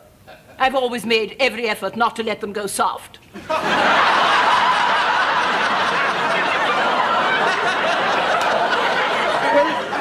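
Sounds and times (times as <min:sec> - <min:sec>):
studio audience laughing: 0:03.4 - 0:10.0.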